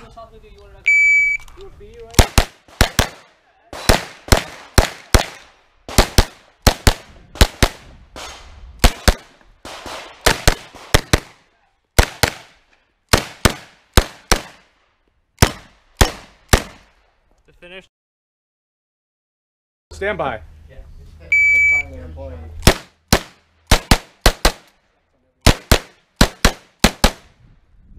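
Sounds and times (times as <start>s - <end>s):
carbine gunshots: 2.1s - 11.4s, 12.0s - 14.7s, 15.4s - 16.9s, 22.6s - 24.7s, 25.4s - 27.3s.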